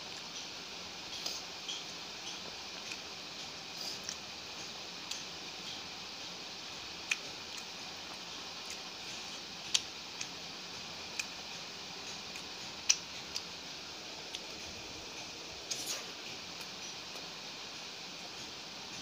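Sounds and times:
steady hiss: 0:00.0 - 0:19.0
eating clicks and smacks: 0:07.0 - 0:08.9, 0:09.6 - 0:10.4, 0:12.0 - 0:13.6.

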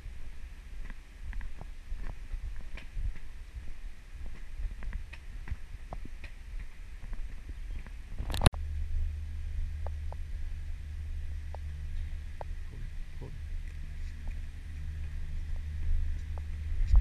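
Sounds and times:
footsteps on pavement: 0:00.0 - 0:08.4
low hum: 0:00.0 - 0:17.0
low wind rumble: 0:00.0 - 0:17.0
camera handling noise: 0:08.2 - 0:08.5.

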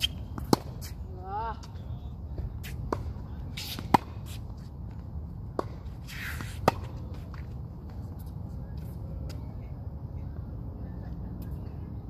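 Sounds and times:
racket hitting tennis ball: 0:00.0 - 0:01.0, 0:02.6 - 0:04.4, 0:05.5 - 0:07.5.

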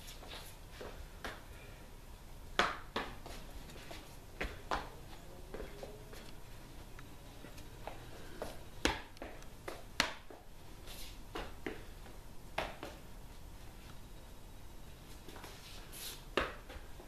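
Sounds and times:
shoes scuffing on concrete: 0:00.0 - 0:01.4, 0:02.6 - 0:06.3, 0:15.1 - 0:16.9.

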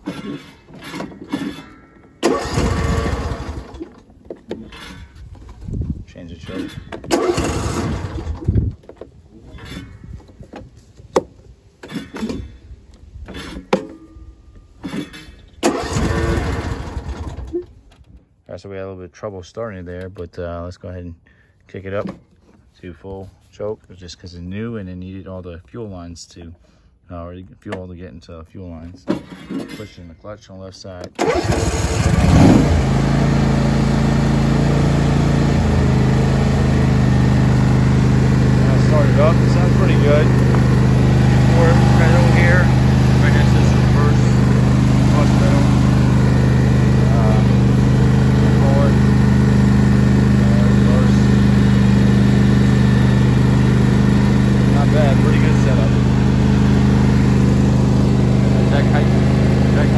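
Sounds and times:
engine cranking: 0:00.0 - 0:10.2, 0:14.6 - 0:18.2, 0:31.0 - 0:59.9.

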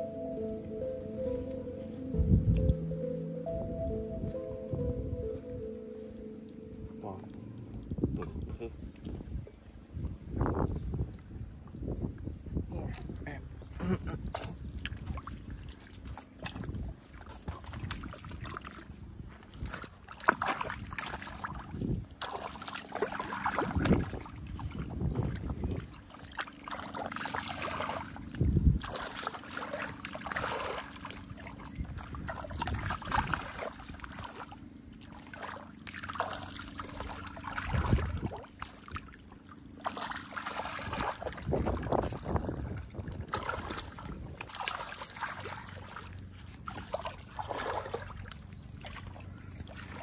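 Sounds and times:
boots squelching through water and mud: 0:13.7 - 0:50.0
water trickling: 0:19.6 - 0:50.0.

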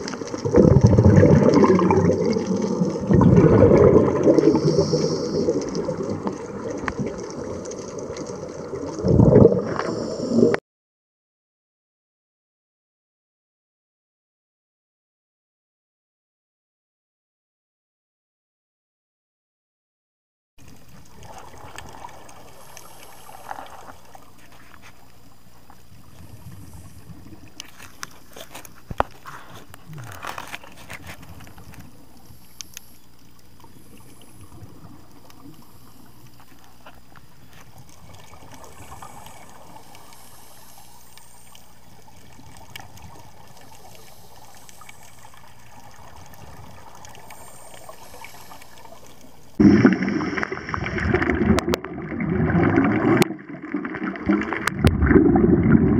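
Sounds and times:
regulator bubbling: 0:00.0 - 0:10.6, 0:41.2 - 0:55.9
underwater hiss: 0:00.0 - 0:10.6, 0:21.2 - 0:25.1, 0:25.7 - 0:27.7, 0:28.9 - 0:51.6.

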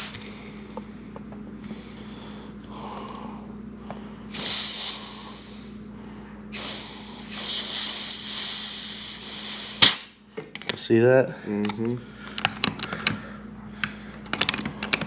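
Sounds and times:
compressed air hissing: 0:04.3 - 0:05.8, 0:06.5 - 0:10.2.

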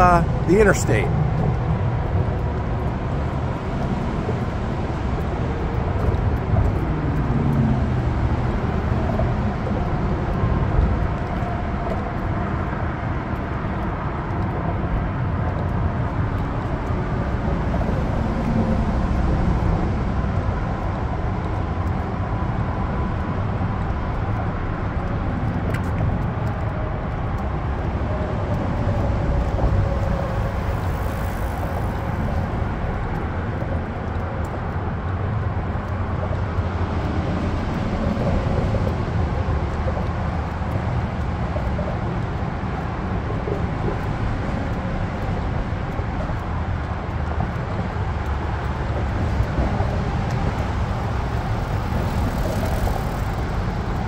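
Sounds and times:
freeway traffic rumble: 0:00.0 - 0:54.0.

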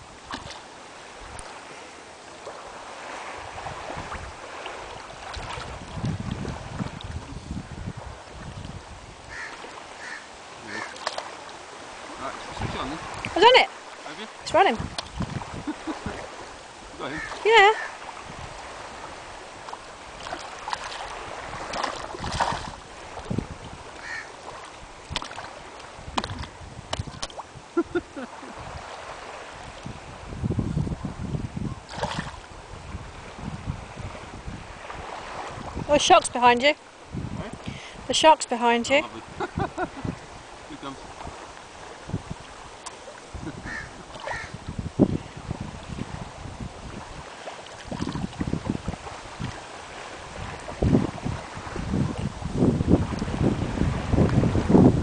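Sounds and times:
sea water sloshing: 0:00.0 - 0:31.1, 0:31.8 - 0:54.7
wind on microphone: 0:00.0 - 0:55.0.

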